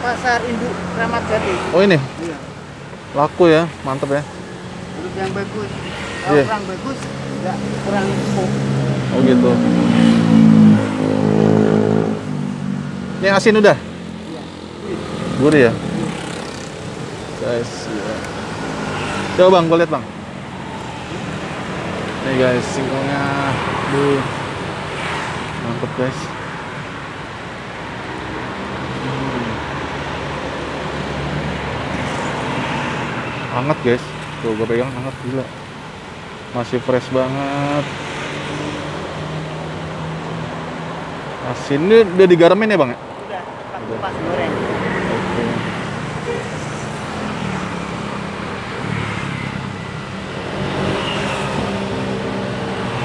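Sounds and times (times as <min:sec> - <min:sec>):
street traffic noise: 0:00.0 - 0:53.0
passing vehicle engine hum: 0:03.8 - 0:26.1, 0:37.8 - 0:53.0.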